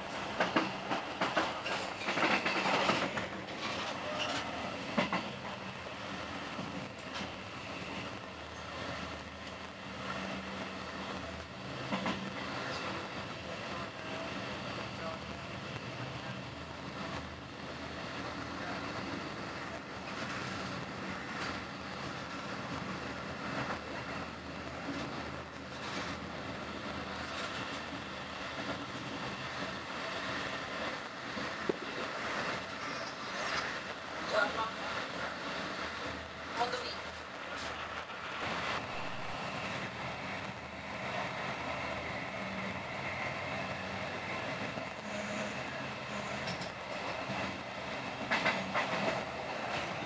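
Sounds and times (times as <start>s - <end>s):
train running rush: 0.0s - 50.0s
train wheels clattering over joints: 0.1s - 5.7s, 46.3s - 50.0s.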